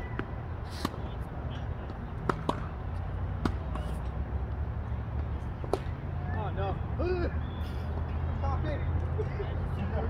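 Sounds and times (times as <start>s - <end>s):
tennis ball knocks: 2.2s - 2.7s.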